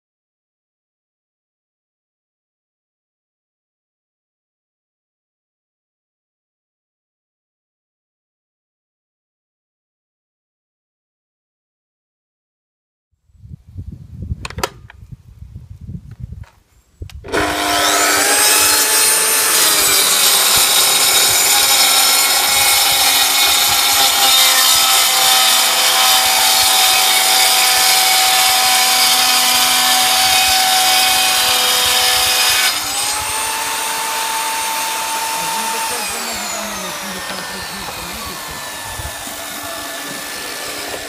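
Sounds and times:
circular saw cutting board: 17.2s - 41.0s.

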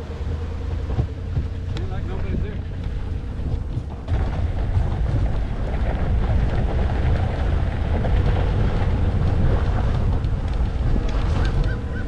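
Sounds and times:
wind rushing over microphone: 0.0s - 12.0s.

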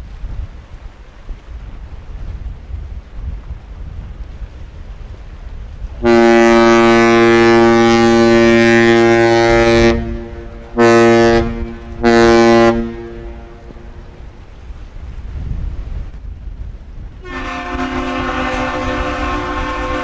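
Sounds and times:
wind noise: 0.0s - 20.0s
deep ship horn blasts: 5.9s - 14.6s, 17.2s - 20.0s.

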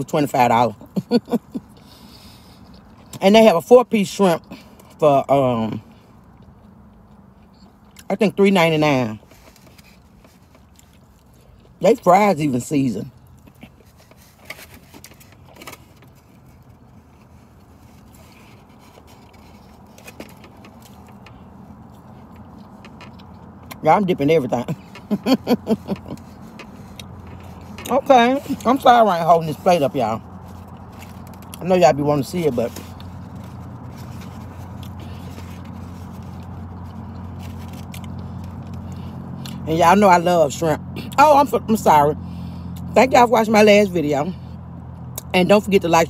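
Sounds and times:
car cabin low hum: 0.0s - 46.0s
person chewing: 5.9s - 8.1s, 9.4s - 11.8s, 13.1s - 23.8s, 24.7s - 28.9s, 32.8s - 39.6s.

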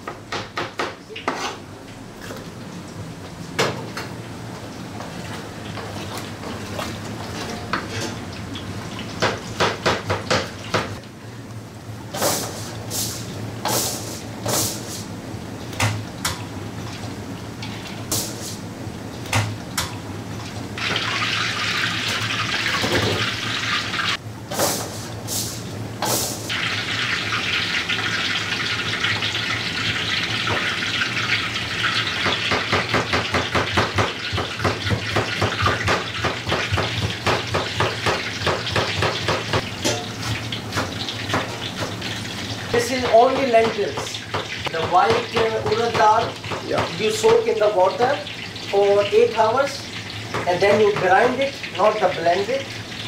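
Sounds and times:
utensils clinking against pans: 32.0s - 42.2s.

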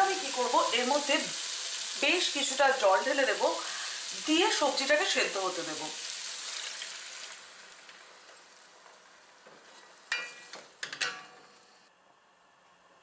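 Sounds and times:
water sizzling on hot vegetables: 0.0s - 10.8s
spoon knocking against pot: 10.1s - 11.4s.

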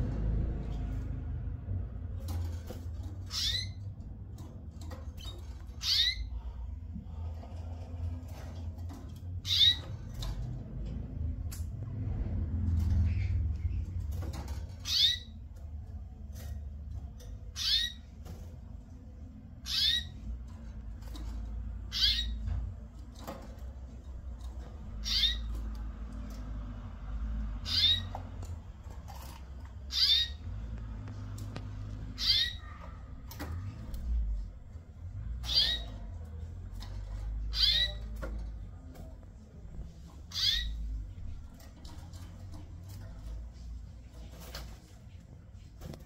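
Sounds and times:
steady low rumble: 9.4s - 29.0s.

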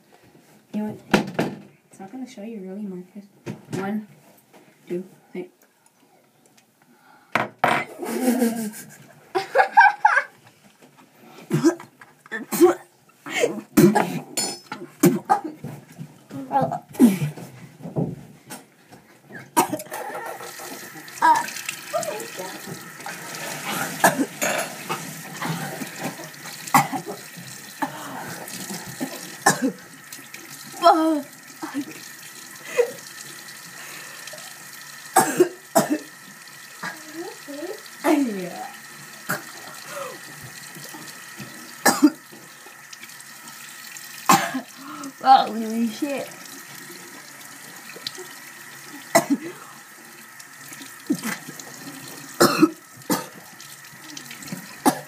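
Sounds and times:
person coughing and sputtering: 11.5s - 14.4s, 19.5s - 20.4s, 24.0s - 24.7s, 26.7s - 27.2s, 29.0s - 29.8s, 35.2s - 36.1s, 39.3s - 40.2s, 41.8s - 42.2s, 44.3s - 44.8s, 49.1s - 49.6s, 52.4s - 53.4s
gasping breaths: 39.7s - 40.4s, 44.7s - 45.2s.

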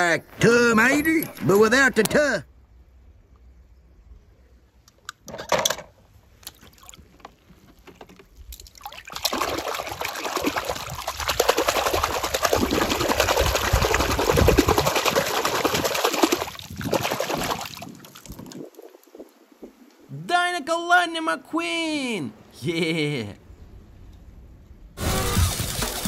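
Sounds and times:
water splashing and trickling: 6.4s - 19.7s.

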